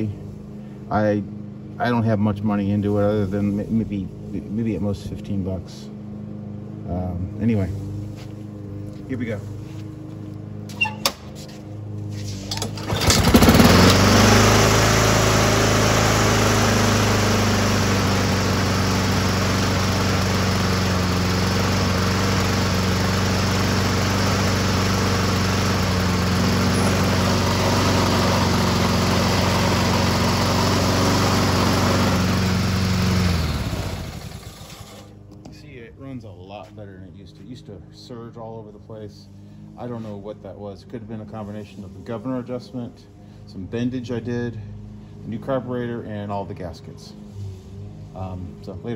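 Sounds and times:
lawn mower engine running: 0:00.0 - 0:35.6.

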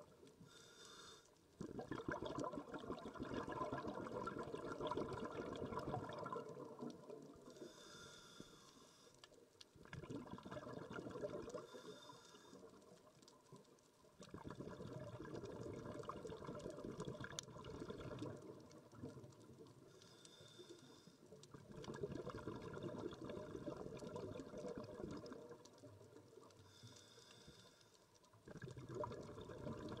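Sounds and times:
exhaled bubbles gurgling: 0:01.6 - 0:07.8, 0:09.8 - 0:13.6, 0:14.2 - 0:19.9, 0:21.4 - 0:26.9, 0:28.3 - 0:30.0
regulator inhalation hiss: 0:07.6 - 0:09.1.

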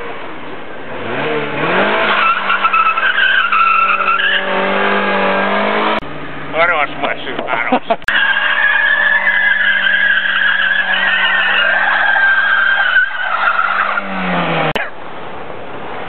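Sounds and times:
car engine at high revs: 0:00.0 - 0:08.2, 0:12.8 - 0:16.0
tyres squealing: 0:02.0 - 0:05.0, 0:08.1 - 0:14.8.

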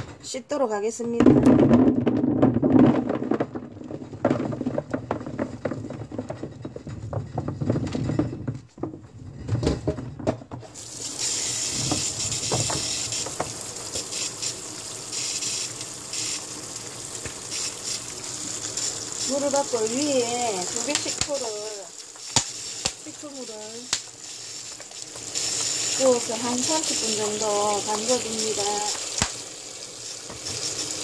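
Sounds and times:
plums tumbling into plastic basin: 0:01.0 - 0:10.8, 0:11.6 - 0:14.0, 0:18.5 - 0:24.2
tap running water: 0:09.6 - 0:31.0
hands stirring wet fruit: 0:17.2 - 0:29.4.

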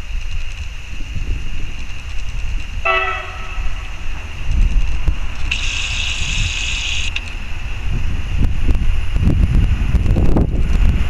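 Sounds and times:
wind rumbling on microphone: 0:00.0 - 0:11.0
train horn blasts: 0:02.8 - 0:04.0.

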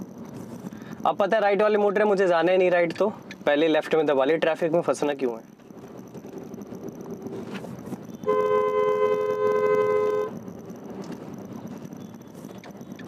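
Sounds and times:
engine and road hum: 0:00.0 - 0:13.0
car horn held: 0:08.2 - 0:10.4.

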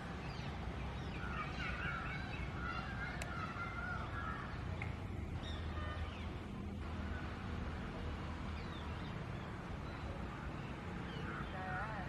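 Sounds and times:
bird calls and chirps: 0:00.0 - 0:06.4.

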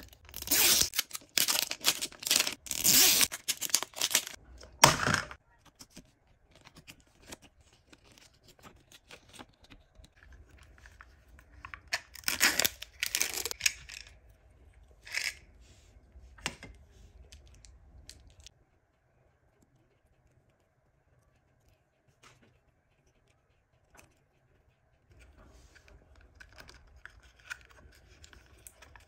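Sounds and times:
wrapping crinkling and tearing: 0:00.0 - 0:04.4, 0:11.8 - 0:14.1.

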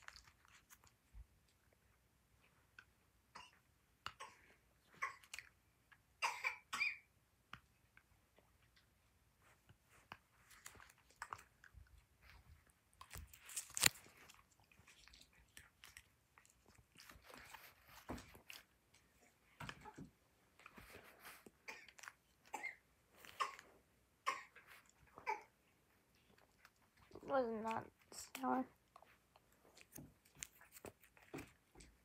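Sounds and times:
person chewing crunchy candy: 0:00.0 - 0:01.0, 0:10.4 - 0:19.4, 0:28.9 - 0:31.9.

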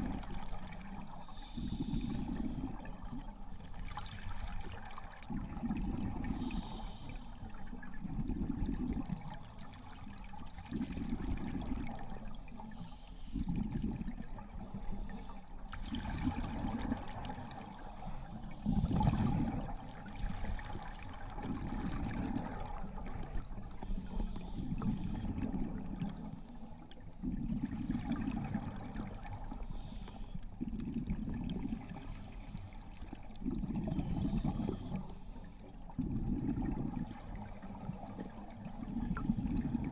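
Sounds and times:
scuba regulator breathing: 0:00.0 - 0:04.8, 0:06.2 - 0:07.8, 0:09.0 - 0:10.3, 0:12.0 - 0:13.5, 0:14.6 - 0:15.6, 0:17.3 - 0:21.1, 0:23.2 - 0:26.9, 0:29.0 - 0:30.4, 0:31.9 - 0:33.1, 0:33.8 - 0:35.9, 0:37.3 - 0:39.9
bubbles gurgling: 0:15.7 - 0:17.4, 0:18.7 - 0:19.8, 0:21.2 - 0:23.3, 0:27.2 - 0:29.1, 0:30.6 - 0:32.0, 0:33.4 - 0:34.8, 0:35.9 - 0:37.5.

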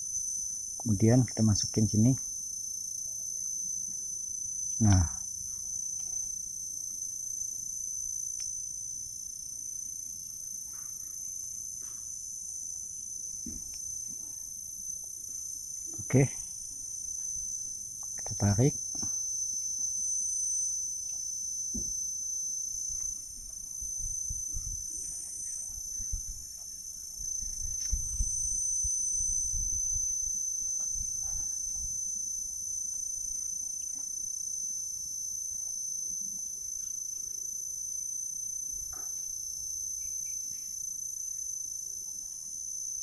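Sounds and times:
high-pitched insect chorus: 0:00.0 - 0:43.0
low rumble on microphone: 0:23.2 - 0:32.1.

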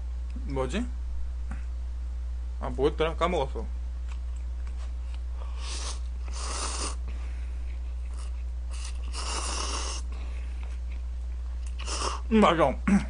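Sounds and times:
low electrical hum: 0:00.0 - 0:13.0
noodles being slurped: 0:08.1 - 0:10.1, 0:11.7 - 0:12.2.

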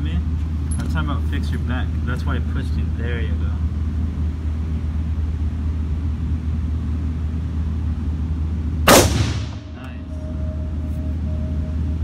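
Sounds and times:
ventilation droning hum: 0:00.0 - 0:12.0.

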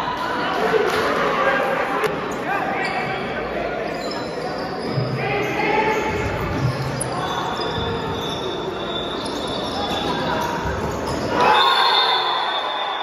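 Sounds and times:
players and spectators shouting: 0:09.6 - 0:13.0.

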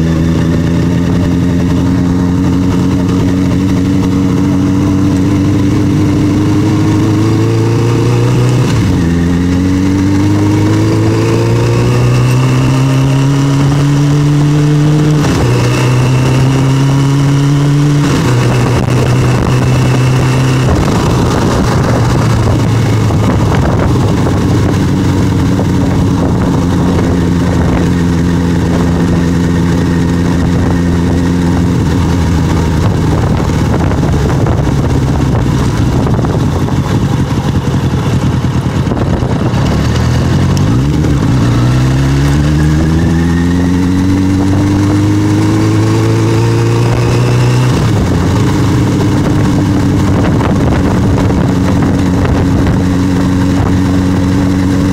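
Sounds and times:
motorcycle engine accelerating: 0:00.0 - 0:54.9.

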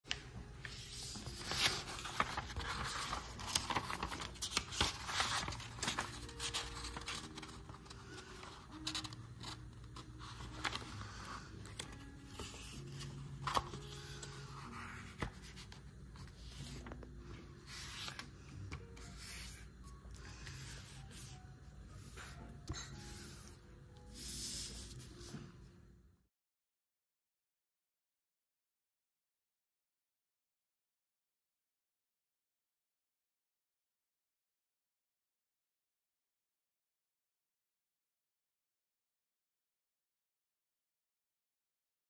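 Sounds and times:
paper rustling and crinkling: 0:00.1 - 0:23.5
soft background music: 0:00.1 - 0:26.3.

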